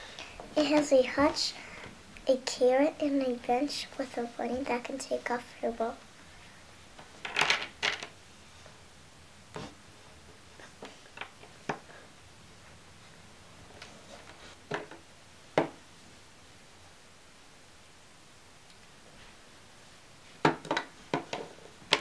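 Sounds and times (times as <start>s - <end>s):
plastic bricks clacking: 7.2s - 8.1s.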